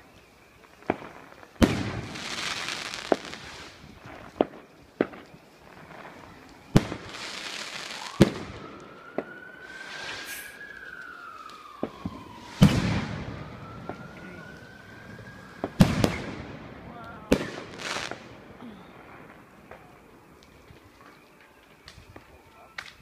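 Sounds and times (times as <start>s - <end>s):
crackling hiss of sparks: 0.0s - 23.0s
fireworks bangs: 0.6s - 23.0s
siren wailing: 5.6s - 22.9s.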